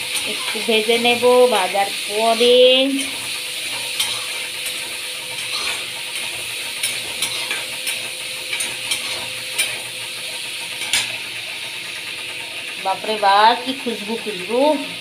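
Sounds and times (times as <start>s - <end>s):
fish sizzling in oil: 0.0s - 15.0s
spatula scraping a pan: 1.9s - 11.2s.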